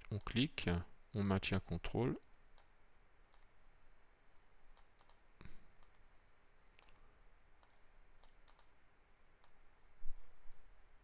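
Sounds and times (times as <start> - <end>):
computer mouse and keyboard clicks: 4.8 - 5.2, 6.8 - 7.0, 7.6 - 8.7.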